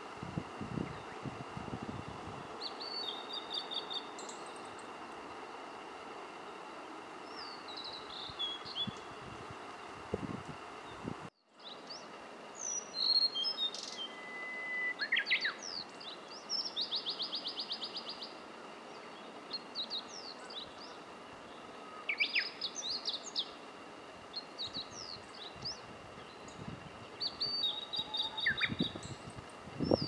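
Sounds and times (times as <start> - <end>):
bird singing whistled notes: 2.6 - 4.8, 7.2 - 9.1, 11.6 - 23.6, 24.3 - 30.0
bird trill: 11.6 - 23.6, 27.2 - 30.0.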